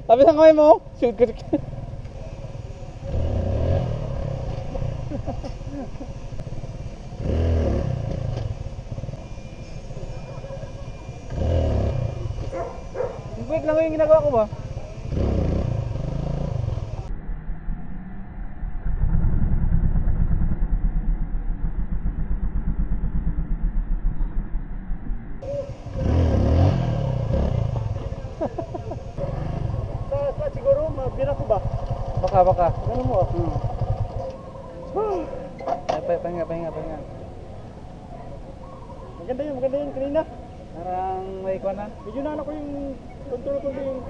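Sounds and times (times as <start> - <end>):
dirt bike engine revving: 1.6 - 17.1, 25.4 - 34.6.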